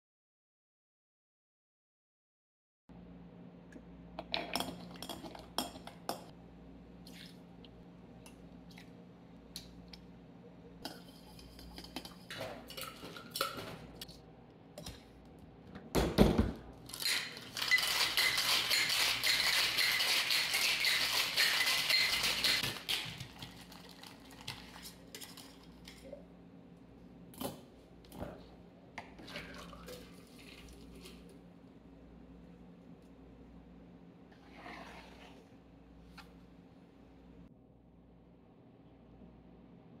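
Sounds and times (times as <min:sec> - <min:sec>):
ice clinking into metal shaker: 0:16.9 - 0:25.6
ice rattling in shaken shaker: 0:16.9 - 0:26.0
shaker and strainer clinking: 0:16.9 - 0:26.1.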